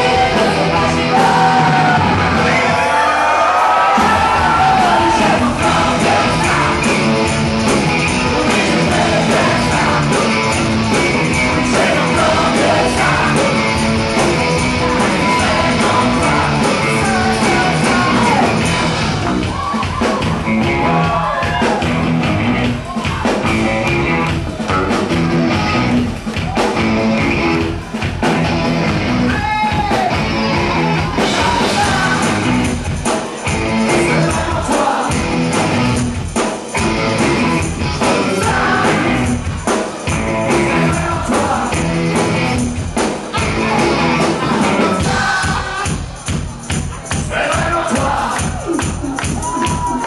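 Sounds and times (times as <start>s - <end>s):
lead vocal singing: 0.0s - 19.7s, 29.9s - 35.9s, 37.3s - 42.6s, 43.3s - 46.2s, 47.1s - 50.0s
live rock band playing: 0.0s - 50.0s.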